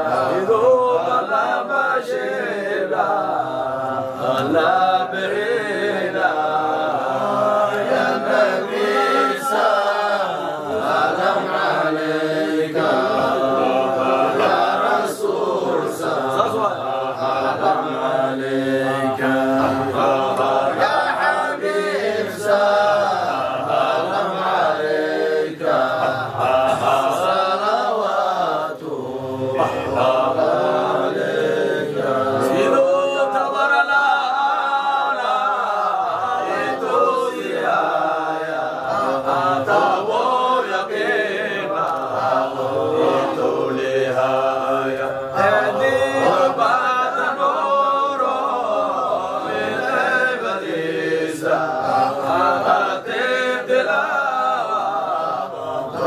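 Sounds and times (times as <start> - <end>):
men chanting together: 0.0 - 56.0.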